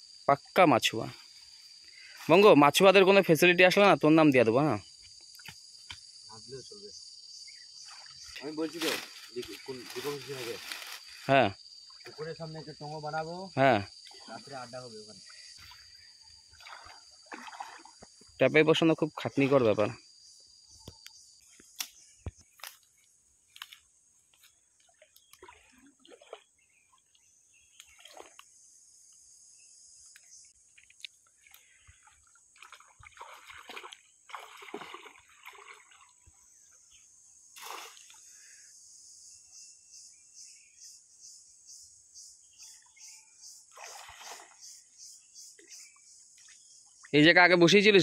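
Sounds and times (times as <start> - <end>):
high-pitched insect drone: 0.0 - 24.6
stream water splashing: 7.6 - 11.2, 13.9 - 18.4, 24.8 - 28.5, 30.6 - 36.4, 37.5 - 38.3, 43.7 - 44.8.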